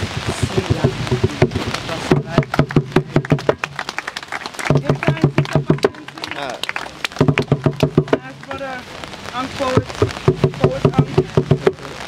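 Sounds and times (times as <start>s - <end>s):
voices: 0.0s - 12.0s
people clapping in rhythm: 0.2s - 8.8s.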